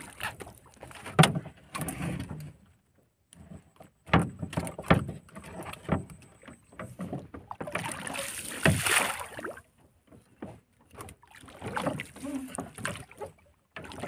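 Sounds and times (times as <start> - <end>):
knocks and thumps on wooden deck: 4.0 - 5.2.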